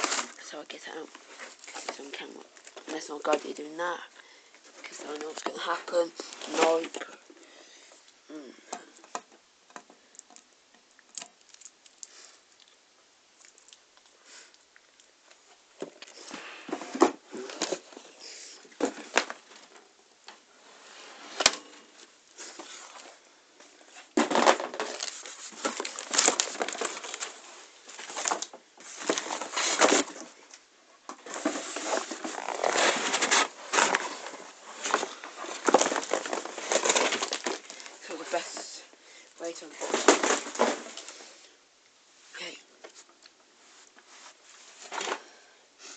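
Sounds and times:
packaging rustling and crinkling: 0.0s - 7.2s, 15.8s - 20.0s, 21.1s - 41.3s.

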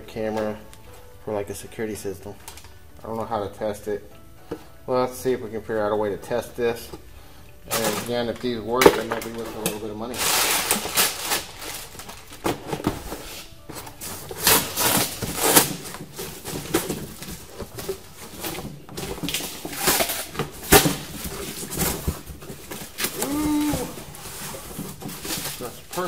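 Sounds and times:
cardboard and plastic rustling: 5.6s - 26.0s
objects being handled knocks: 7.7s - 9.9s.

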